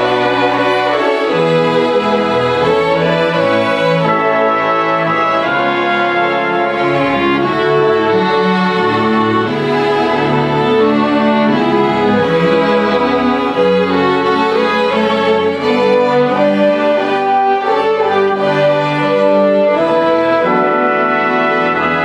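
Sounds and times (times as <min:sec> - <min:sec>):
orchestra strings sustained chords: 0:00.0 - 0:22.0.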